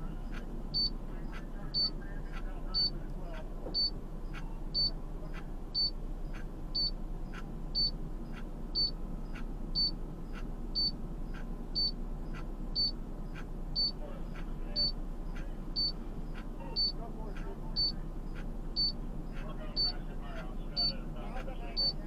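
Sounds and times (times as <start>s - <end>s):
steady low rumble: 0.0s - 22.0s
faint tick: 0.3s - 22.0s
high-pitched electronic beep: 16.7s - 17.0s.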